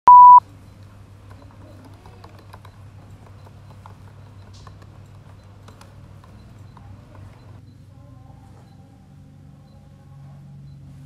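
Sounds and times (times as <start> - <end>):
laptop keyboard typing: 0.1 - 7.6.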